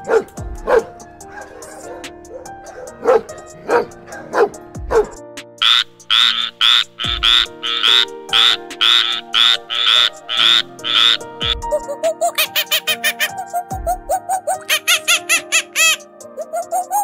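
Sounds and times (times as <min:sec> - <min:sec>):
background music: 0:00.0 - 0:17.0
frog croaking: 0:05.6 - 0:11.6, 0:12.4 - 0:13.4, 0:14.6 - 0:16.0
small dog yipping: 0:07.1 - 0:17.0.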